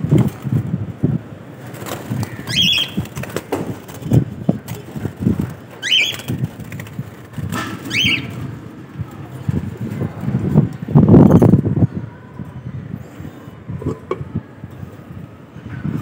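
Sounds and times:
birds fluttering: 1.4s - 10.5s
bird rising chirp: 2.4s - 3.0s, 5.8s - 6.4s, 7.9s - 8.4s.

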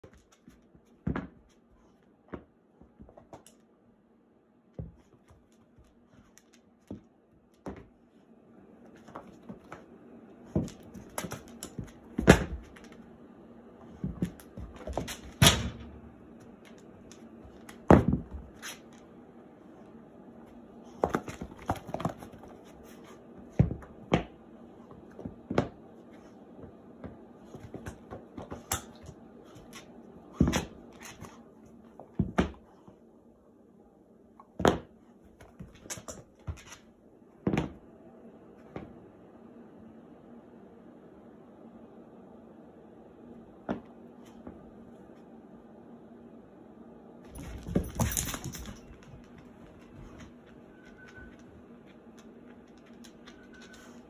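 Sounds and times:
dog feet scuffling: 13.8s - 32.9s, 34.6s - 36.9s, 47.2s - 54.0s.

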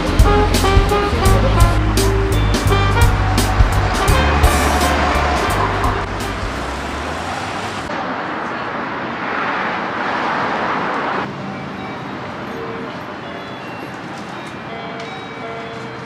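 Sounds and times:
street noise: 0.0s - 16.0s
car driving past: 1.2s - 11.3s.

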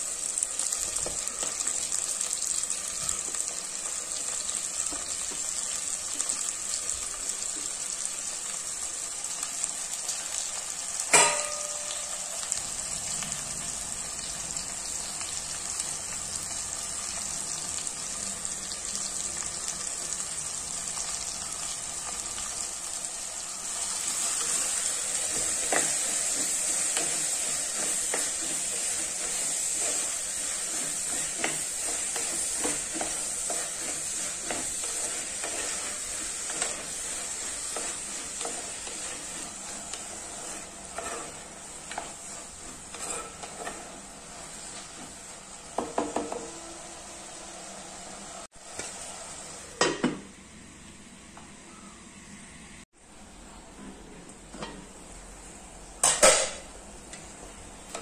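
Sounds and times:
vegetables sizzling in a pot: 0.0s - 53.3s, 54.4s - 58.0s
spatula scraping clay pot: 26.3s - 44.0s.

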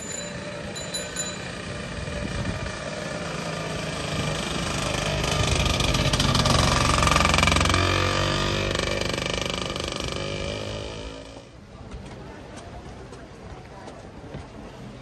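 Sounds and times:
vehicle engine passing by: 1.8s - 11.4s.

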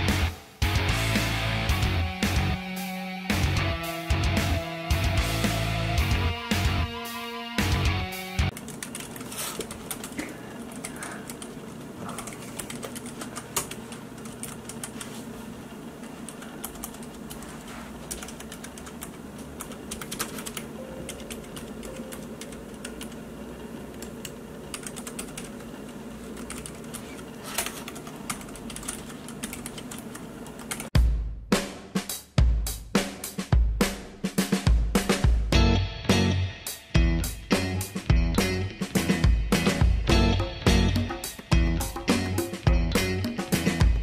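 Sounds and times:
drum-kit music: 0.0s - 8.5s, 31.0s - 44.0s
mechanical keyboard typing: 8.5s - 15.1s, 16.2s - 17.4s, 18.0s - 23.2s, 23.9s - 30.9s.

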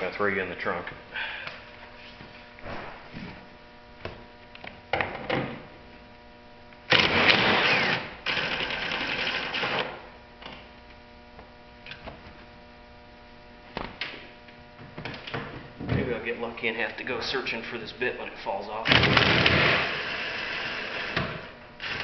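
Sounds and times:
cordless impact driver running: 6.9s - 10.0s, 18.9s - 22.0s.

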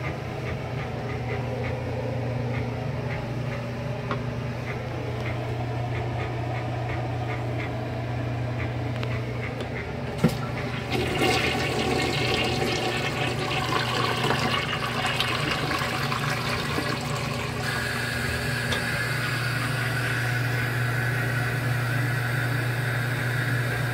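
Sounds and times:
toilet water rushing: 10.2s - 23.9s.

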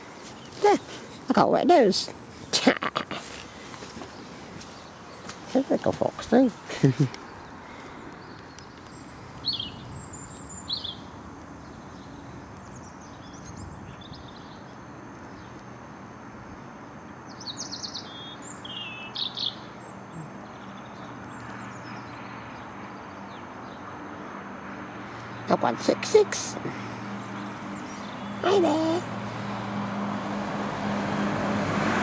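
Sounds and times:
small birds chirping: 0.0s - 29.8s
low rushing background noise: 0.0s - 31.8s.

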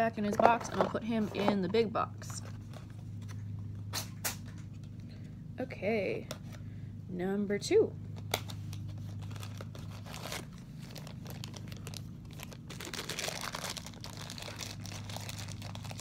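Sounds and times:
steady low hum: 0.0s - 16.0s
cardboard and wrapping crinkling: 8.2s - 16.0s.

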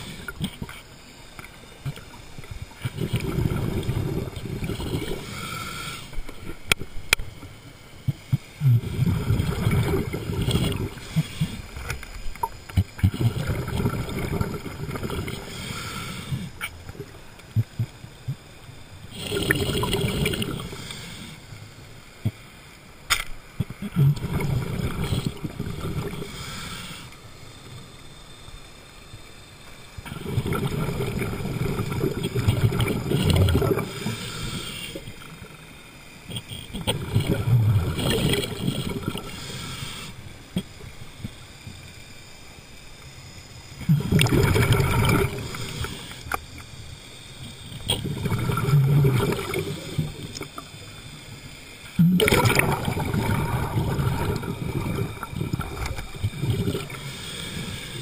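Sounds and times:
diver exhaling bubbles underwater: 2.8s - 5.6s, 8.3s - 11.8s, 12.4s - 17.9s, 19.1s - 21.0s, 23.6s - 26.6s, 30.0s - 35.4s, 36.3s - 39.7s, 43.8s - 46.4s, 47.7s - 50.6s, 52.0s - 58.0s.

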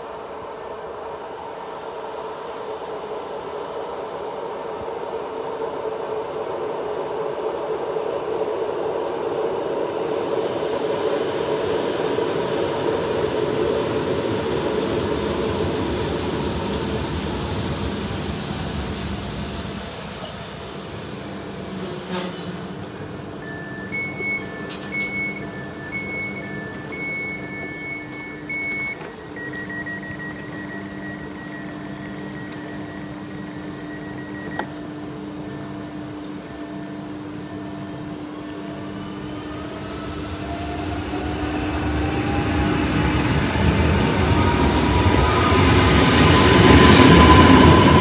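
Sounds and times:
train approaching on track: 0.0s - 48.0s
train brake squeal: 13.4s - 29.0s, 39.5s - 48.0s.

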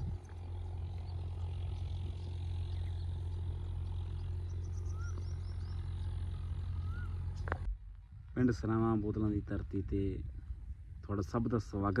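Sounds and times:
steady low rumble: 0.0s - 12.0s
high bird chirps: 0.9s - 7.7s
rising and falling whistled call: 4.4s - 6.0s, 6.7s - 7.5s.

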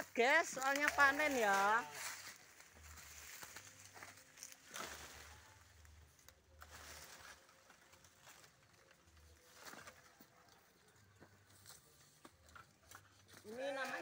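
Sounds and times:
foliage rustling: 0.0s - 10.5s.

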